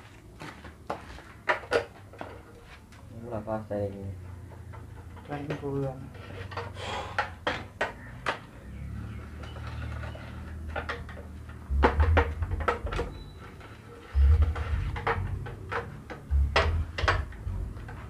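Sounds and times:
low bumps: 8.4 - 18.0.

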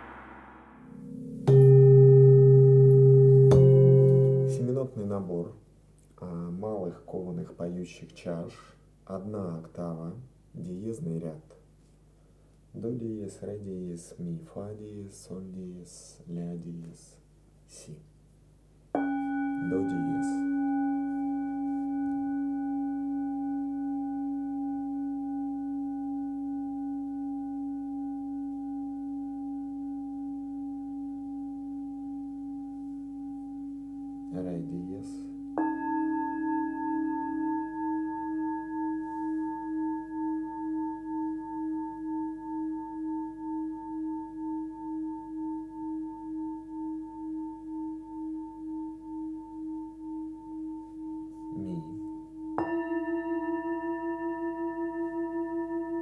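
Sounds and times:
singing bowl ringing: 0.0 - 5.3, 18.9 - 56.0
pulsing singing bowl tone: 0.0 - 5.4, 18.9 - 56.0.

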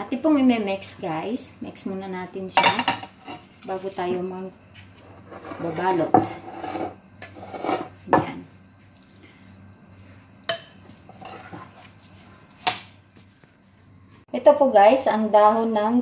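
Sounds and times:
spoon scraping in bowl: 5.0 - 8.1, 9.5 - 12.4.

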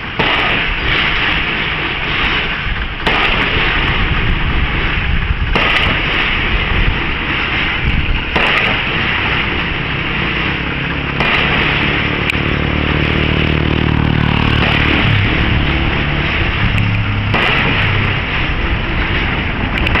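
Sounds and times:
loud rushing noise: 0.0 - 20.0
machine engine running: 8.1 - 20.0.

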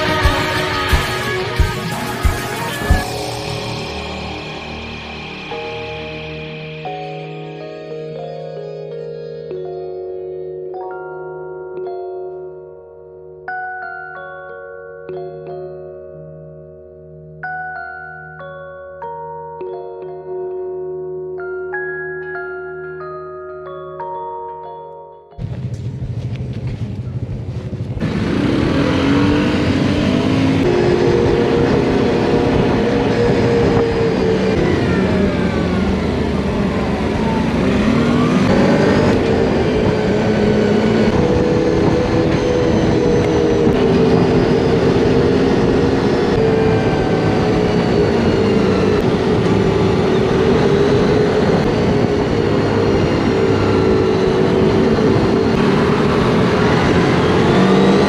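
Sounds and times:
quad bike engine running: 25.4 - 58.0.

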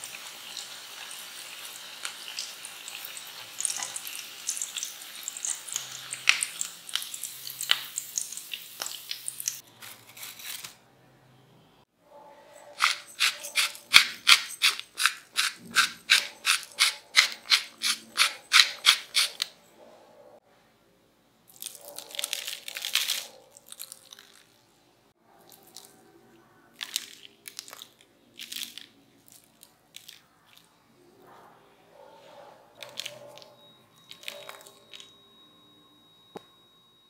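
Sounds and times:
crisp rasping strokes: 12.7 - 19.4
spice sprinkling hiss: 12.8 - 19.4.

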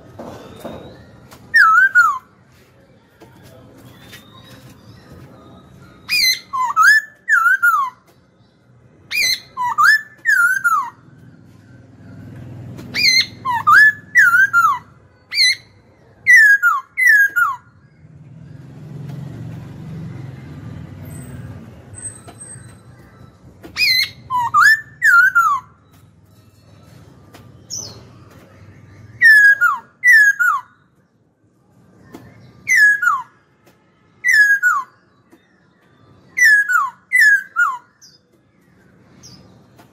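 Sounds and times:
bird whistling descending notes: 0.6 - 2.3, 23.8 - 25.7.

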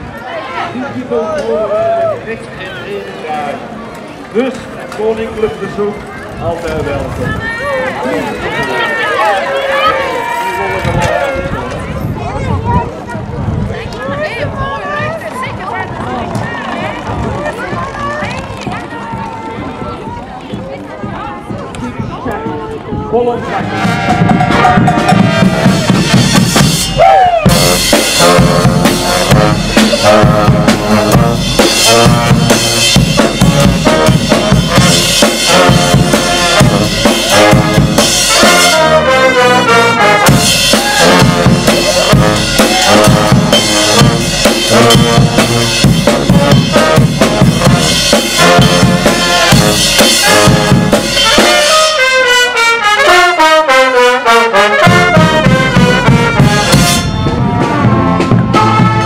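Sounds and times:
trumpets: 7.2 - 12.1, 23.4 - 59.0
bass drum: 22.4 - 39.0, 40.2 - 51.6, 54.8 - 59.0
trombone: 23.5 - 59.0
snare drum: 23.6 - 39.0, 40.2 - 51.9, 54.8 - 59.0.

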